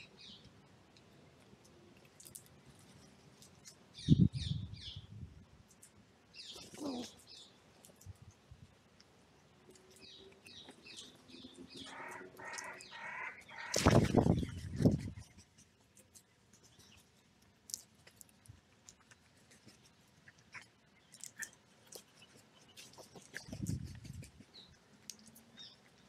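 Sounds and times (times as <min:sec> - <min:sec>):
songbird chirps: 0:00.0 - 0:00.5, 0:03.6 - 0:05.2, 0:06.3 - 0:07.6, 0:09.6 - 0:15.8.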